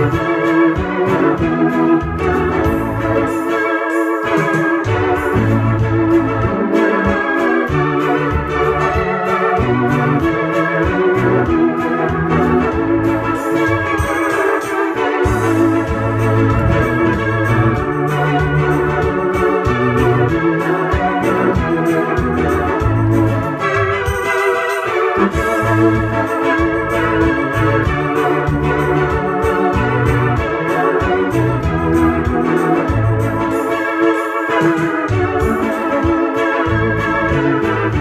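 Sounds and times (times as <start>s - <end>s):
organ chords on keyboard: 0.0s - 38.0s
keyboard bass line: 5.0s - 6.6s, 15.3s - 20.3s.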